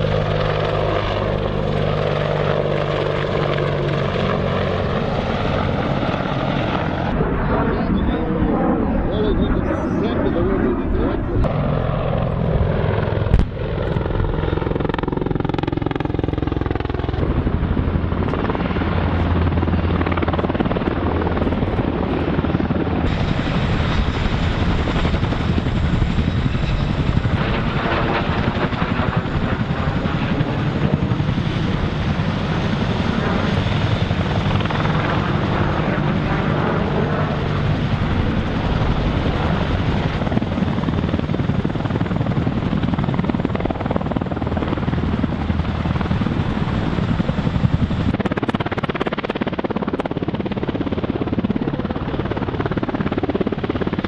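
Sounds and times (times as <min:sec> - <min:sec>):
helicopter rotors and engines: 0:00.0 - 0:54.0.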